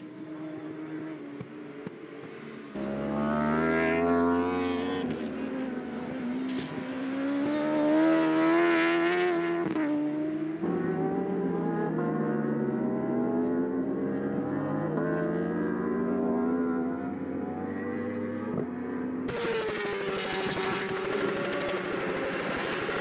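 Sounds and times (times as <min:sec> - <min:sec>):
engine revs falling: 0:19.3 - 0:23.0
superbike engines revving high: 0:19.3 - 0:23.0.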